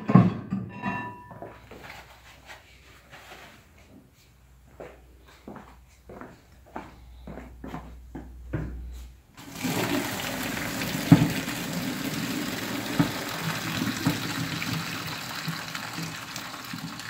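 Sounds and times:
water pouring into a sink: 9.4s - 17.0s
knocks on a colander: 11.0s - 11.6s, 12.8s - 14.5s.

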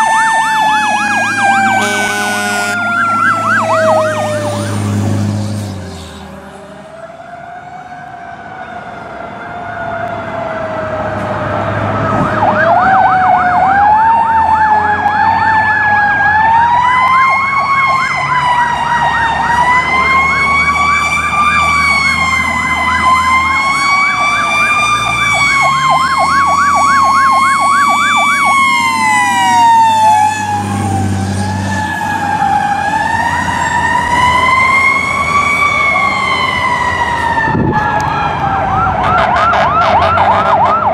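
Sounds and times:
rapid siren yelp: 0.0s - 5.6s, 6.7s - 11.2s, 11.9s - 40.9s
siren wailing: 0.0s - 40.9s
truck engine revving: 0.8s - 7.2s.

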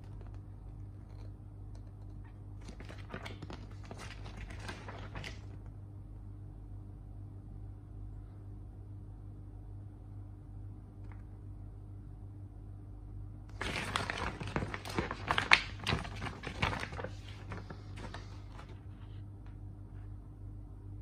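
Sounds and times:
steady low hum: 0.0s - 21.0s
paper rustling and crackling: 2.6s - 5.7s, 13.5s - 19.2s.

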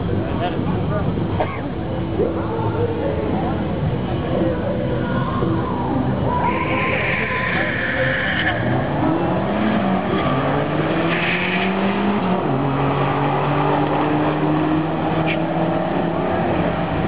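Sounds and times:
race car engines accelerating: 0.0s - 17.0s.

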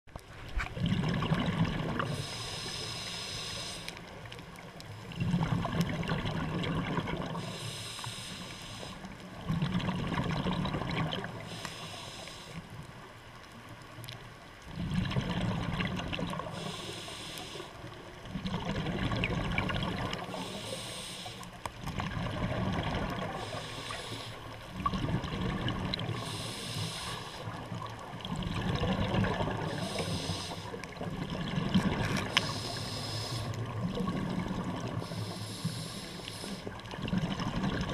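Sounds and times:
bubbling exhalations underwater: 0.8s - 2.2s, 5.1s - 7.4s, 9.4s - 11.3s, 14.7s - 16.5s, 18.3s - 20.3s, 24.7s - 26.2s, 28.2s - 30.0s, 31.0s - 32.4s, 33.6s - 35.0s
regulator hiss of inhaling: 2.1s - 4.1s, 7.4s - 9.2s, 11.4s - 12.8s, 16.5s - 17.9s, 20.2s - 21.6s, 23.3s - 24.6s, 26.2s - 27.6s, 29.7s - 30.8s, 32.2s - 33.6s, 35.0s - 36.8s.

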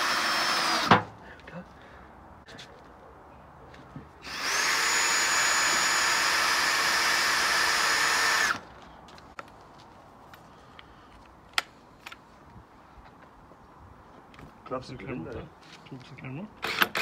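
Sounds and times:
cordless drill whining: 0.0s - 1.0s, 4.2s - 8.6s.

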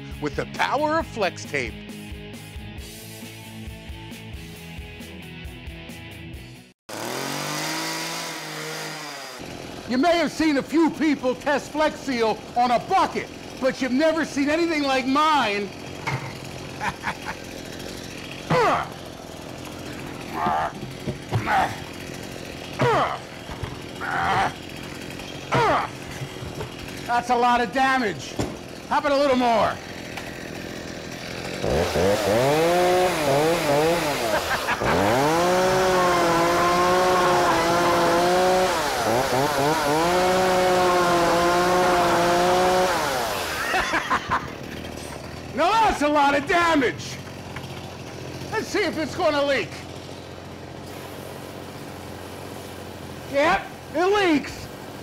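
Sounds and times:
chainsaw cutting plastic bucket: 6.9s - 55.0s.

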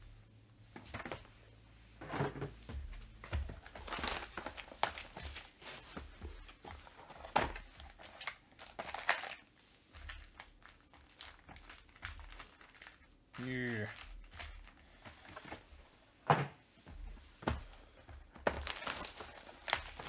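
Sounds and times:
cardboard packaging crinkling: 3.3s - 15.6s, 17.5s - 20.0s.

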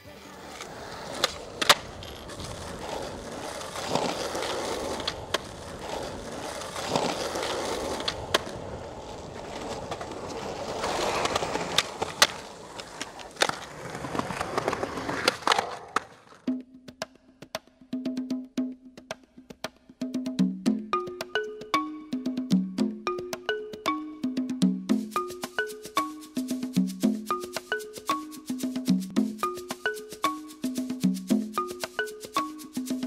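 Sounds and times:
skateboard wheels rolling on pavement: 0.0s - 16.5s
skateboard clacking on ground: 0.1s - 16.5s.

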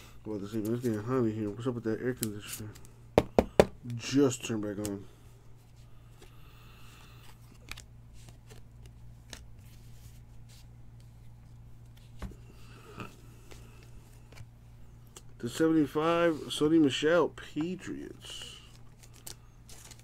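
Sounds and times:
air conditioner humming: 0.0s - 20.0s
cards and wrappers rustling: 17.8s - 20.0s.

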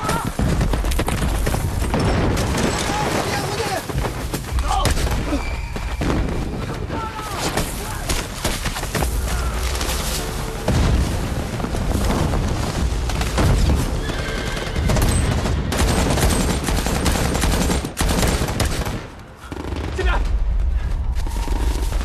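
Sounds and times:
explosions booming: 0.0s - 6.9s, 10.5s - 14.0s
heavy low rumble: 9.0s - 14.0s.

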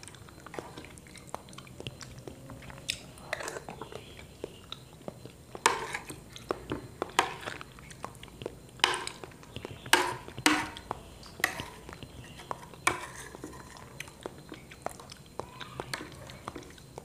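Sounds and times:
soft chewing: 0.0s - 17.0s
metal spoon scraping ceramic plate: 3.2s - 3.9s, 5.6s - 6.2s, 9.9s - 10.8s, 11.4s - 13.9s.

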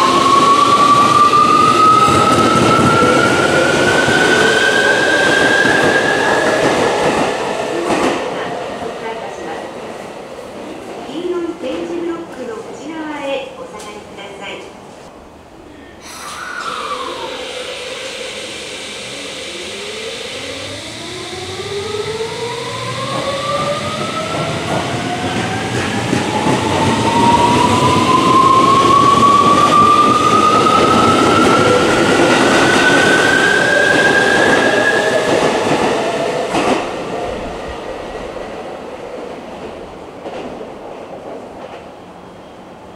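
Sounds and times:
electric train motor whine: 16.1s - 24.9s.

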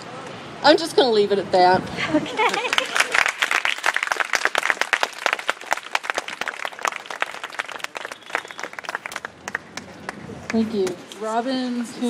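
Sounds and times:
crowd applauding: 2.4s - 11.0s.

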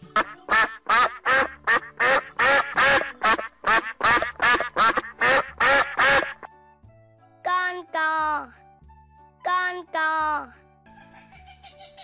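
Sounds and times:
duck quacking: 0.0s - 6.5s.

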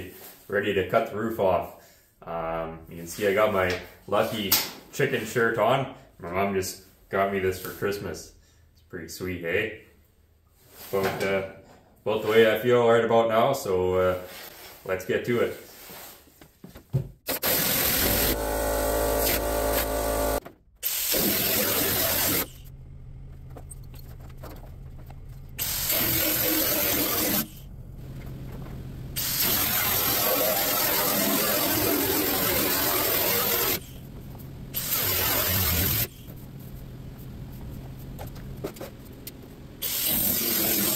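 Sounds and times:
grinder cutting sheet steel: 17.3s - 22.6s, 25.6s - 27.6s, 29.2s - 33.9s, 34.8s - 36.2s, 39.8s - 40.9s.

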